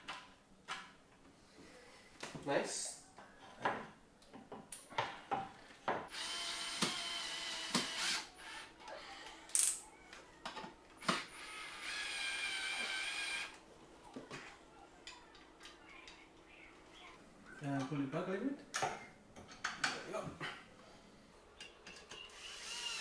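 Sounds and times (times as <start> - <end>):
power drill driving screws: 6.1 - 9.2, 11.0 - 13.6, 22.3 - 23.0.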